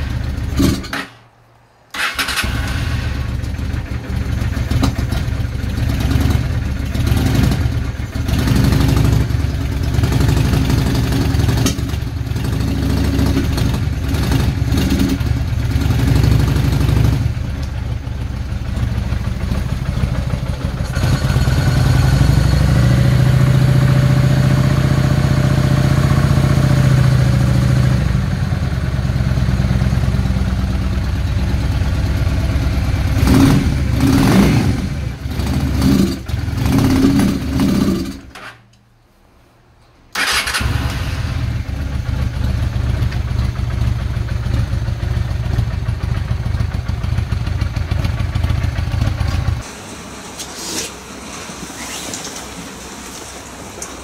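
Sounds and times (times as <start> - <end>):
motorcycle engine revving: 0.0 - 1.2, 1.9 - 38.4, 40.2 - 54.0.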